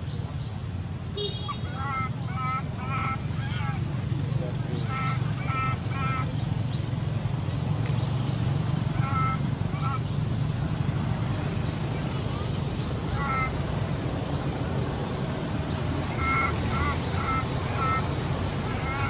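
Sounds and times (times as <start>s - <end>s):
monkey high-pitched calls: 1.4s - 3.9s, 4.8s - 6.7s, 8.9s - 10.1s, 13.0s - 13.6s, 16.1s - 19.0s.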